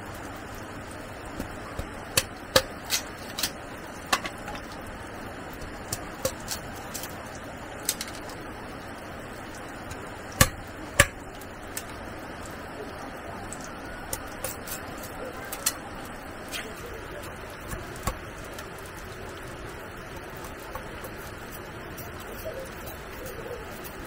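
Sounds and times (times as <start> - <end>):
steady background noise: 0.0 - 24.0
sharp taps and knocks: 9.9 - 12.0.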